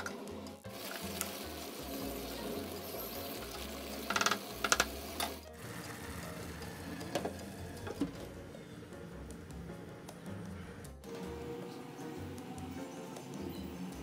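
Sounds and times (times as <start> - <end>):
pot bubbling: 0.0 - 8.3.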